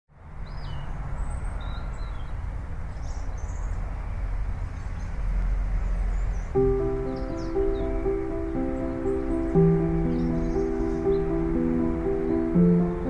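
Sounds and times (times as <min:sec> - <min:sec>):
faint high bird chirps: 0:05.9 - 0:13.0
melody of clear notes: 0:06.6 - 0:13.0.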